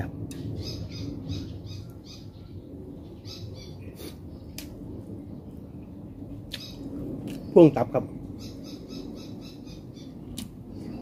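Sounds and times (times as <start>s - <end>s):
steady low hum: 0.0s - 11.0s
bird chirping: 8.3s - 11.0s.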